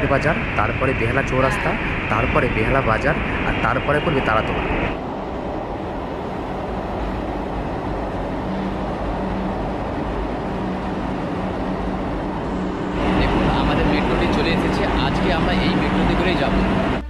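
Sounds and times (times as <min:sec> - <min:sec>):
low hum: 0:00.0 - 0:17.0
train wheels rumbling on rails: 0:00.0 - 0:17.0.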